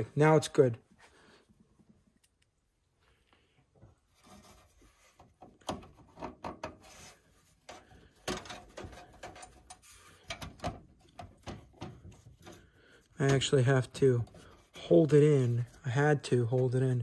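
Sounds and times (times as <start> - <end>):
knocks clicks and scraping on pc case: 5.2 - 12.6.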